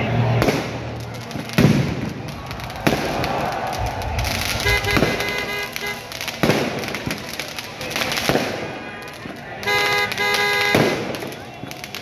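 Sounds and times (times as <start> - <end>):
crowd noise: 0.0 - 12.0
firework shells bursting: 0.5 - 8.6.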